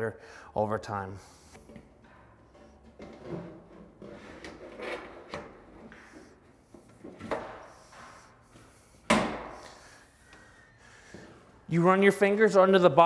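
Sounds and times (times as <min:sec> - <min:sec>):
sheet metal scraping: 0:01.6 - 0:06.3.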